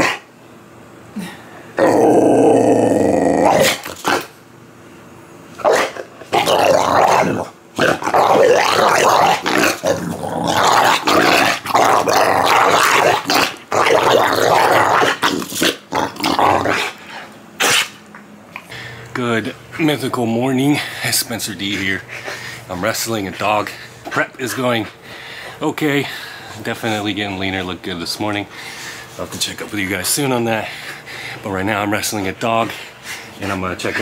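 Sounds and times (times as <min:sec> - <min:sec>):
dog play-growling: 0:01.8 - 0:04.4, 0:05.5 - 0:18.7.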